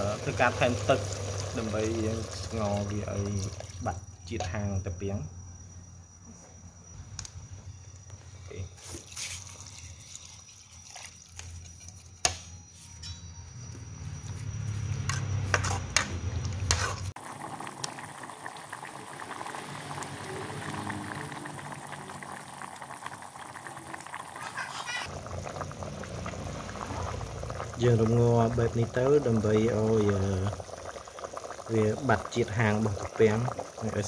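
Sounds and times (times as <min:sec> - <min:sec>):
soup boiling and bubbling: 0:00.0 - 0:04.2, 0:08.8 - 0:12.2, 0:15.5 - 0:34.0.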